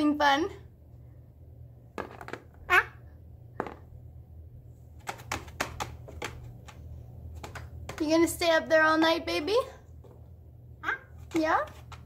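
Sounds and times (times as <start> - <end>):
low room hum: 0.0 - 12.0
parrot squeak: 2.6 - 3.0.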